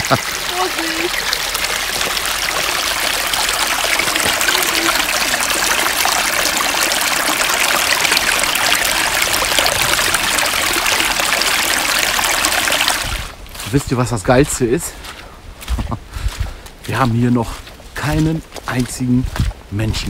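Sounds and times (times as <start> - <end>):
brook babbling: 0.0 - 14.1.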